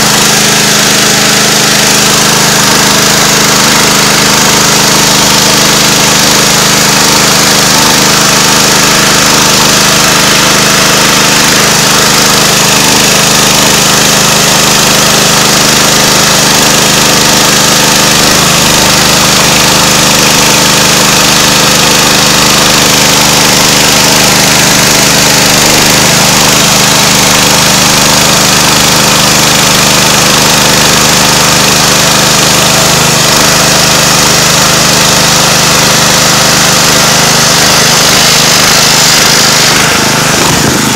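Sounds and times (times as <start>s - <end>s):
chainsaw engine running under load: 0.0s - 40.9s
saw chain cutting wood hiss: 0.0s - 40.9s.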